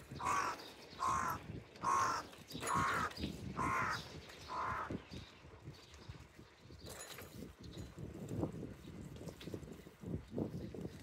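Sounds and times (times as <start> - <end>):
crow cawing: 0.2 - 5.0.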